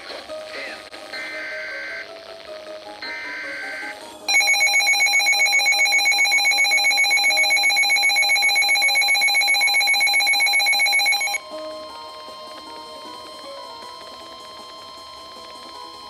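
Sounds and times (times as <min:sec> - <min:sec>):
pulsing electronic alarm beep: 0:03.0 - 0:11.4.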